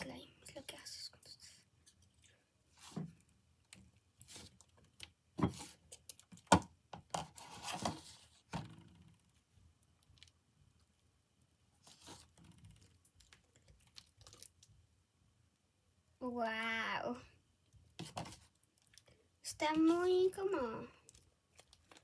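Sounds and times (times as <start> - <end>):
sticky slime squishing by hand: 9.2 - 15.0, 17.6 - 22.0.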